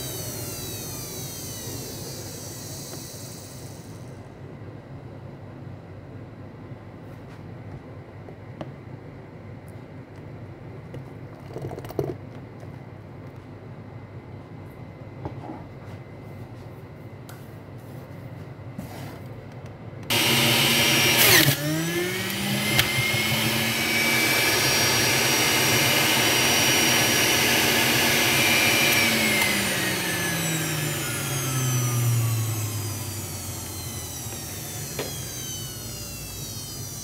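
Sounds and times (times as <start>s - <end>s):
electric juicer motor running: 0.0s - 4.2s, 20.1s - 37.0s.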